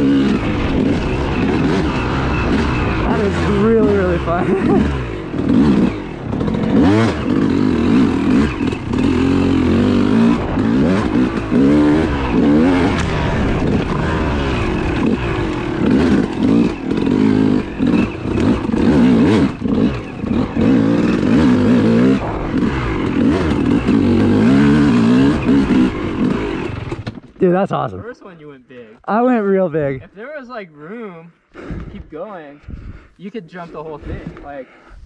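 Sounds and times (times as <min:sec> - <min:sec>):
dirt bike engine revving: 0:00.0 - 0:27.0.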